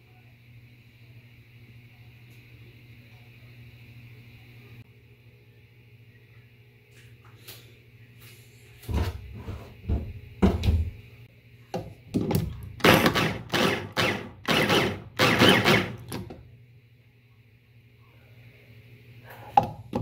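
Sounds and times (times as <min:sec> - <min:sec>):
electric food chopper pulses: 0:12.8 - 0:16.2.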